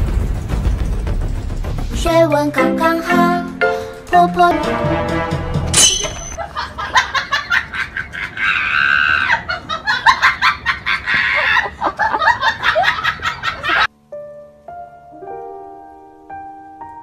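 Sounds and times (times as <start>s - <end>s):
person laughing hard: 6.4s - 13.9s
soft piano notes: 14.0s - 17.0s.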